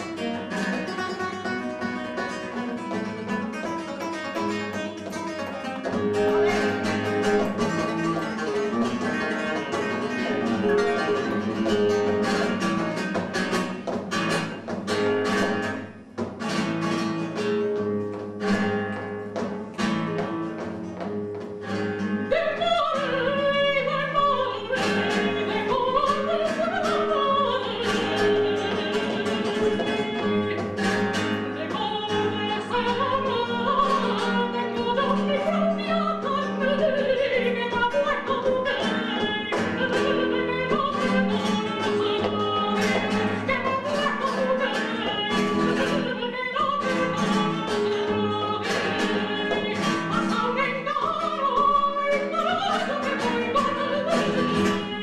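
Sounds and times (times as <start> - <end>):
woman singing operatic: 4.7 - 12.7, 22.0 - 55.0.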